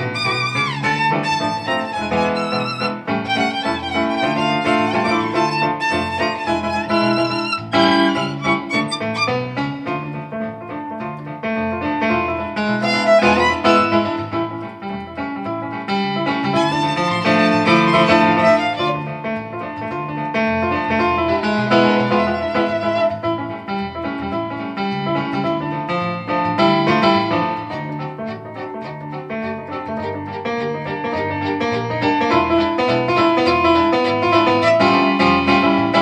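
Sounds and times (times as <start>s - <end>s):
accordion bass notes: 0.0s - 9.9s, 16.6s - 19.1s
violin melody: 0.0s - 10.1s, 12.6s - 14.6s, 16.4s - 19.2s, 21.4s - 23.3s, 27.8s - 33.2s, 34.0s - 35.3s.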